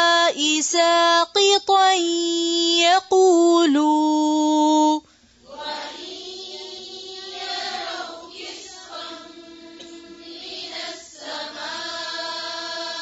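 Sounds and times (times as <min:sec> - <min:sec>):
woman chanting: 0:00.0 - 0:13.0
group chanting in unison: 0:05.4 - 0:13.0.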